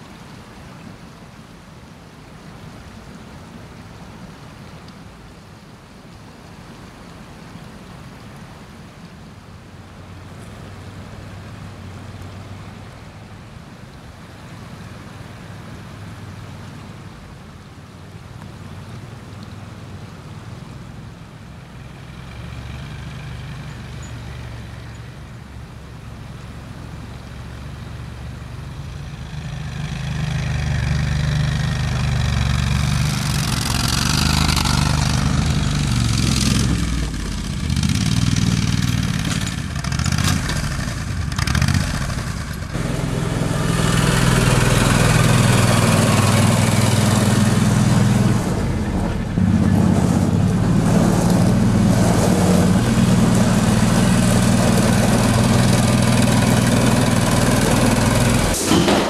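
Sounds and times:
vehicle engine running: 0:27.6 - 0:58.6.

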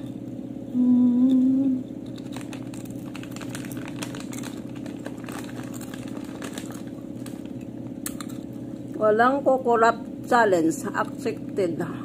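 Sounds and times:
person humming: 0:00.7 - 0:01.9
chewing crunchy chips: 0:02.0 - 0:08.6.

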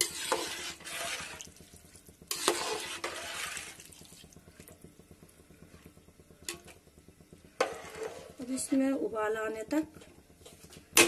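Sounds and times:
spoon stirring in metal pot: 0:00.0 - 0:04.9, 0:05.6 - 0:09.0.

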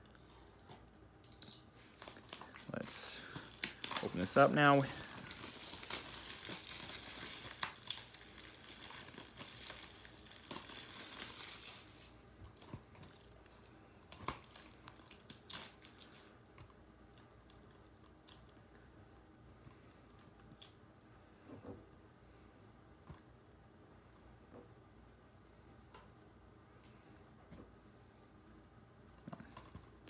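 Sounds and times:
plastic wrap crinkling and tearing: 0:01.5 - 0:16.4.

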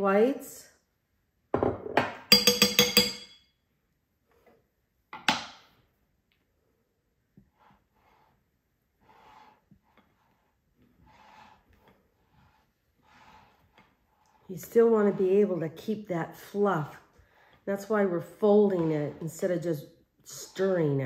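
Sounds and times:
spatula knock: 0:01.5 - 0:03.4
spatula clinking on glass bowl: 0:02.3 - 0:03.4
faint spatula folding mixture: 0:03.6 - 0:21.0.

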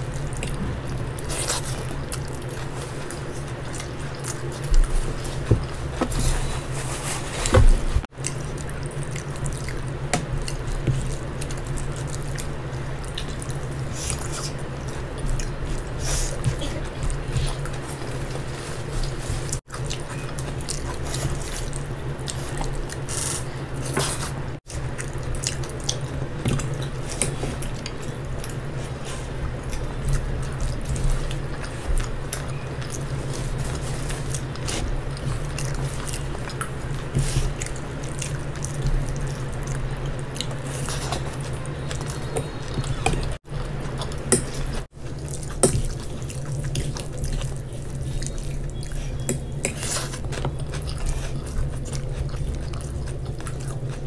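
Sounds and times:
wet chewing and mouth smacking: 0:00.0 - 0:06.0, 0:08.0 - 0:54.0.

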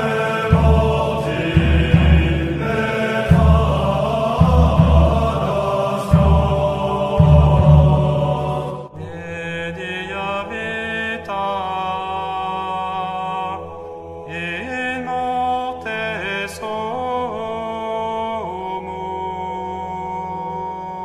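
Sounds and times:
loud deep sound cutting off: 0:00.0 - 0:08.9
chanted hymn: 0:00.0 - 0:21.0.

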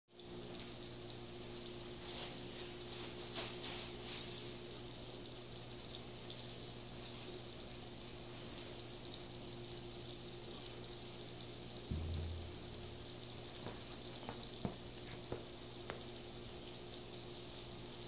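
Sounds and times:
steady low hum: 0:11.9 - 0:14.0.

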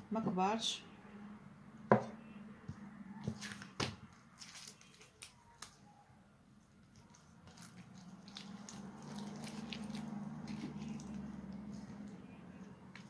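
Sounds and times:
dough squishing wetly: 0:03.1 - 0:13.0.

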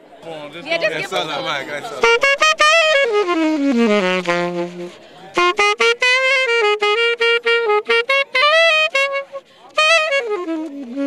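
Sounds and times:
saxophone solo riff: 0:01.9 - 0:11.0.

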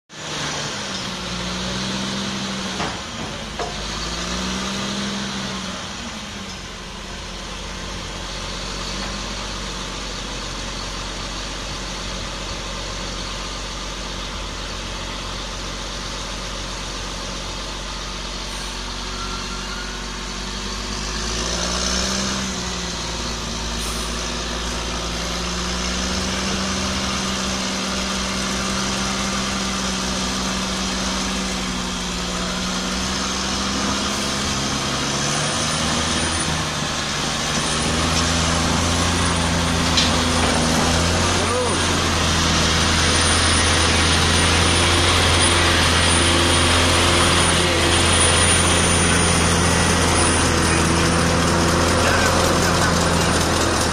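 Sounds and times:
bulldozer diesel engine revving: 0:00.1 - 0:53.9.

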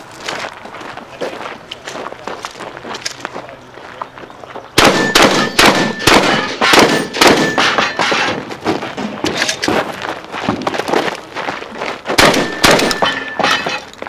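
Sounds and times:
shotgun shots: 0:04.8 - 0:08.4, 0:12.2 - 0:13.8.

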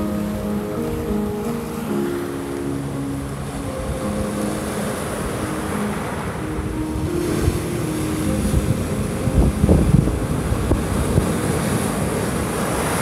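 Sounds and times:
ocean surf breaking: 0:00.0 - 0:13.0
wind buffeting microphone: 0:03.2 - 0:13.0
waves washing over pebbles: 0:04.3 - 0:13.0.

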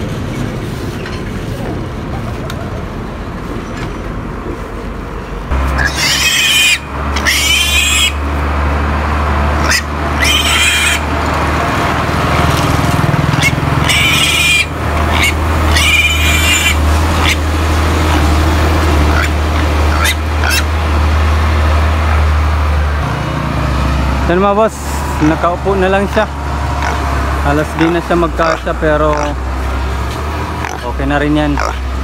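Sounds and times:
piglet squealing: 0:05.8 - 0:08.2, 0:09.6 - 0:11.1, 0:13.4 - 0:17.4, 0:19.1 - 0:20.7, 0:26.8 - 0:27.0, 0:27.6 - 0:29.4, 0:30.6 - 0:30.9, 0:31.5 - 0:31.8.

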